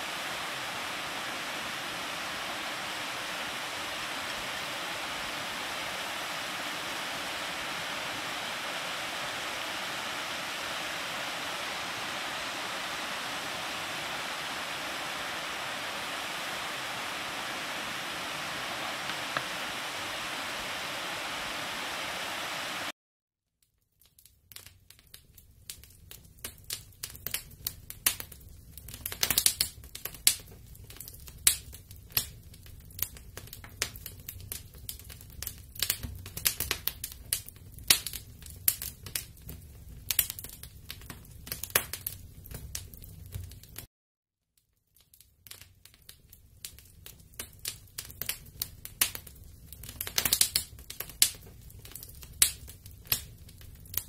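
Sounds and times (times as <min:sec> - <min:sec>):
campfire crackling and popping: 0:00.0 - 0:22.9, 0:24.0 - 0:43.9, 0:45.0 - 0:54.0
steady rushing hiss: 0:00.0 - 0:22.9.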